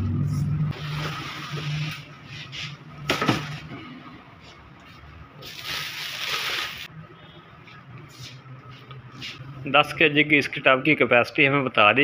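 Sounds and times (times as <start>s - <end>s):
plastic wrapping crinkling: 5.4s - 6.9s.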